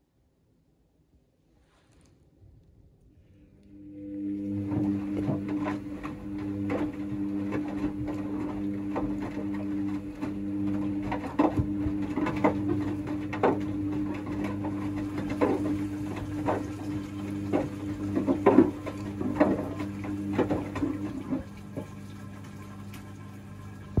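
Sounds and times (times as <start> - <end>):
washing machine motor humming: 3.5 - 24.0
wet clothes sloshing: 4.3 - 24.0.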